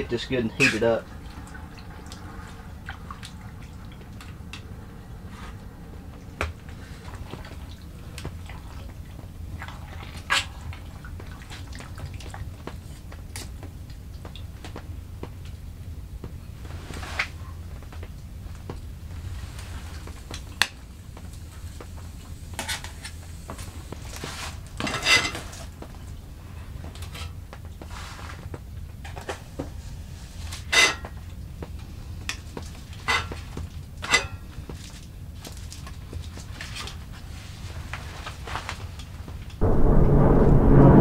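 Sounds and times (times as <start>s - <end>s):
low steady hum: 39.6s - 41.0s.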